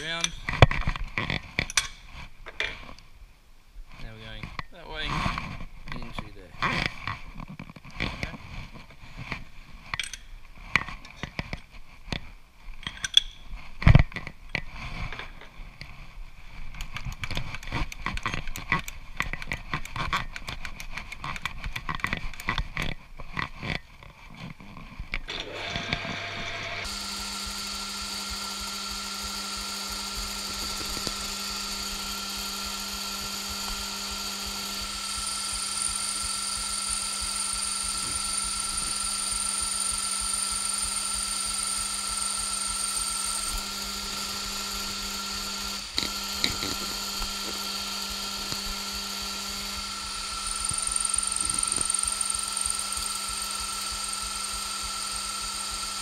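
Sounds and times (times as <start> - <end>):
lathe spindle whine: 25.3 - 56.0.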